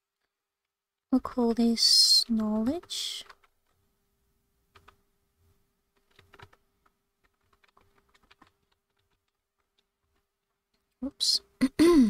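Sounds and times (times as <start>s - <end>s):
keyboard typing: 2.0s - 3.8s, 4.7s - 5.0s, 6.0s - 11.0s.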